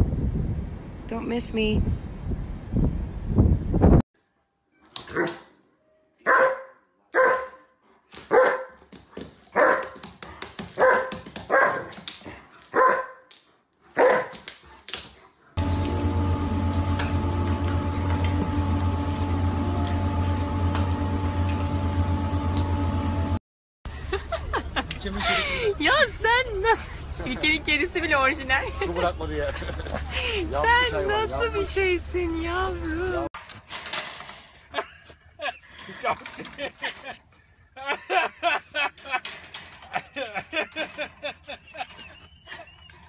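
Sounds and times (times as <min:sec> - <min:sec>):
dog barking: 0:06.2 - 0:07.7, 0:08.3 - 0:08.8, 0:09.5 - 0:10.0, 0:10.8 - 0:11.9, 0:12.7 - 0:13.3, 0:13.9 - 0:14.4
steady humming drone: 0:15.6 - 0:23.4.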